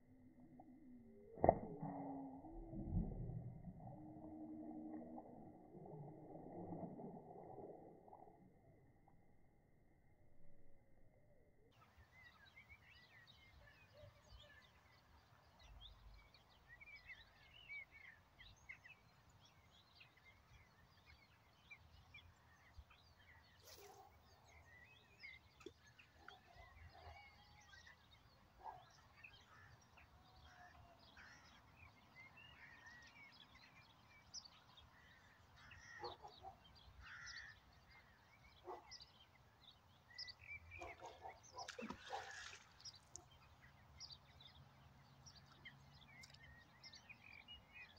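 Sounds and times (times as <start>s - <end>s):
small birds chirping: 21.7s - 47.9s
low bird calls: 28.6s - 39.1s.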